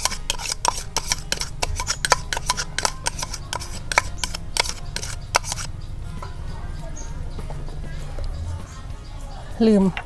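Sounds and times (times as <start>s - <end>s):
spoon clicking against bowls: 0.0s - 5.7s.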